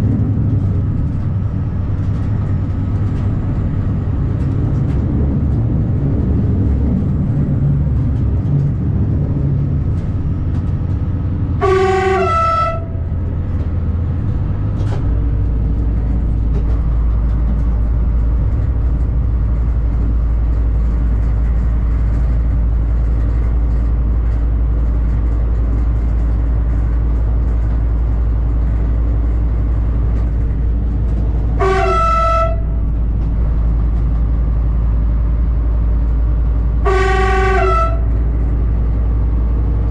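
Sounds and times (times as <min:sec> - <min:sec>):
railcar engine running: 0:00.0 - 0:39.9
wheels on track: 0:00.0 - 0:39.9
train horn blast: 0:11.6 - 0:13.2, 0:31.6 - 0:32.9, 0:36.8 - 0:38.3.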